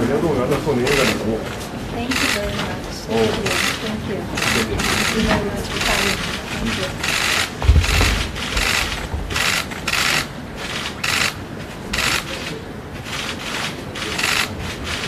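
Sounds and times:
camera shutters clicking in bursts: 0.9s - 1.2s, 4.4s - 15.0s
low thump: 7.6s - 9.4s.

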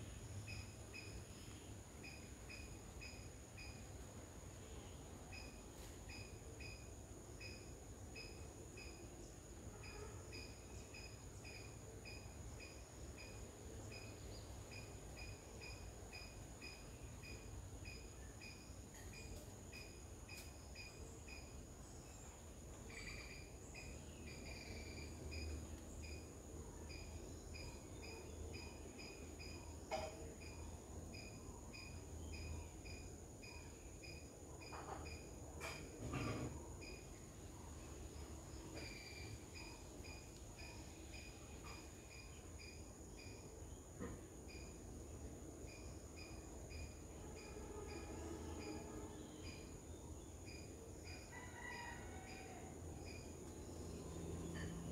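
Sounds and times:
insect chirping: 0.0s - 54.9s
high-pitched insect drone: 45.7s - 49.7s.

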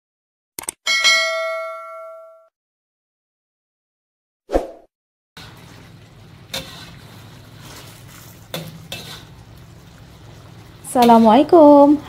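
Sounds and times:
bell-like ding: 0.9s - 2.5s.

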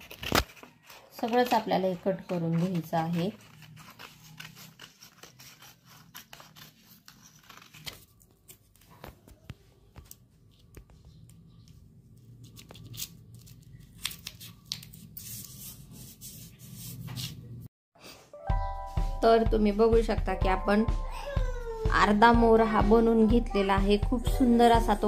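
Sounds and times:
scissors snipping paper: 0.0s - 9.2s
paper rustling: 0.0s - 11.0s.

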